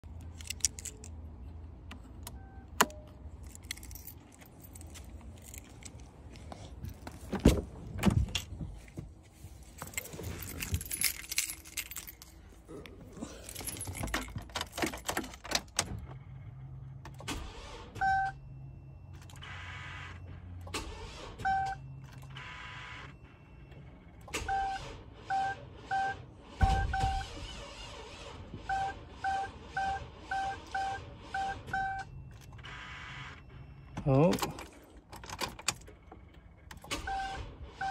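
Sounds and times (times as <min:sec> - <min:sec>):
car keys jangling: 0:00.1 - 0:01.2, 0:01.9 - 0:16.1, 0:34.0 - 0:37.0
dashboard warning chime beeping: 0:02.3 - 0:03.1, 0:18.0 - 0:20.6, 0:28.6 - 0:34.5.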